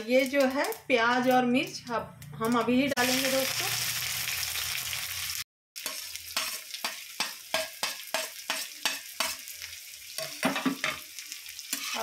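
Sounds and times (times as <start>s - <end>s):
onions sizzling in hot oil: 3.0s - 12.0s
spatula scraping a pan: 5.8s - 9.5s, 11.6s - 12.0s.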